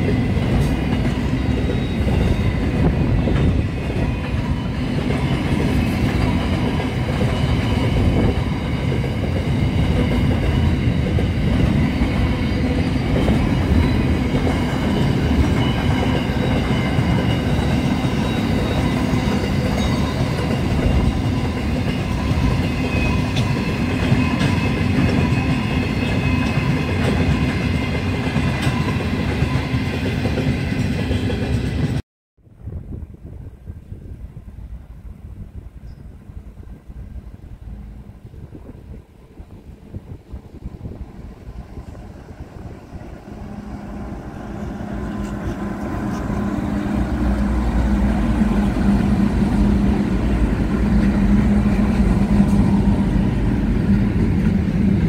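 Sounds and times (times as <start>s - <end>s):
train wheels rumbling on rails: 0.0s - 32.0s, 32.6s - 55.0s.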